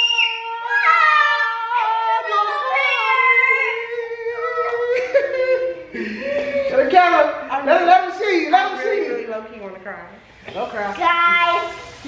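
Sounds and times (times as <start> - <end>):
woman wailing: 0.0 - 6.9.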